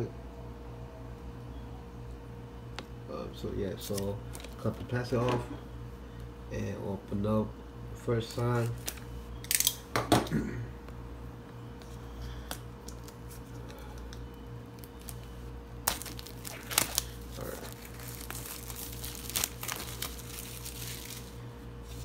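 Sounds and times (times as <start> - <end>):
low electrical hum: 0.0 - 22.0
plastic wrap crinkling and tearing: 14.8 - 22.0.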